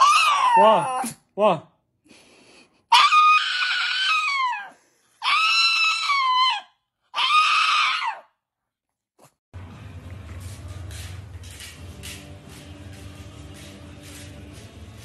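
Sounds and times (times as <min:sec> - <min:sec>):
dog howling: 0:00.0 - 0:01.1, 0:02.9 - 0:08.3.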